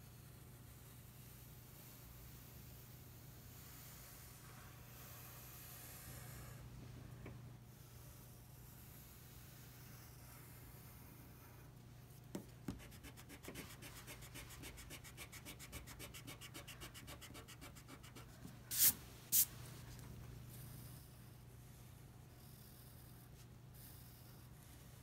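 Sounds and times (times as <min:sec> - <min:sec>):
eraser rubbing on paper: 0:12.7 - 0:18.9.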